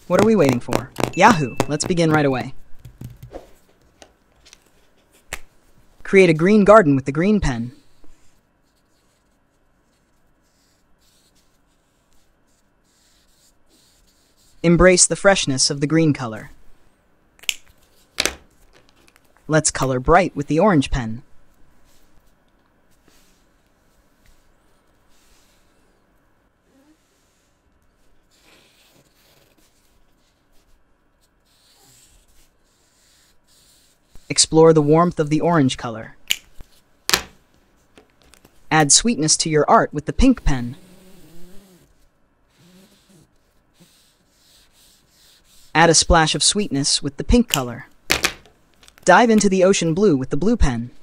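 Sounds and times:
felt-tip marker scratching on paper: 7.7 - 14.7, 28.2 - 35.4, 40.2 - 46.9.

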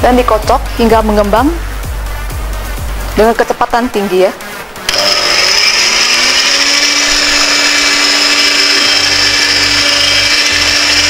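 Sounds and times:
electric hand mixer whining: 4.9 - 11.0.

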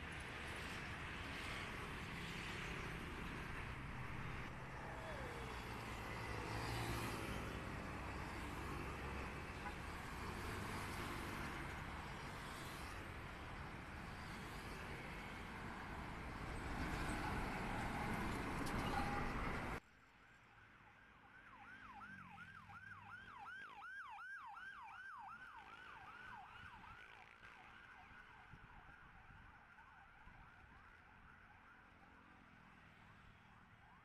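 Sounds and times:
road traffic passing: 0.0 - 19.8
emergency vehicle siren yelping: 4.5 - 7.4, 21.4 - 31.8.

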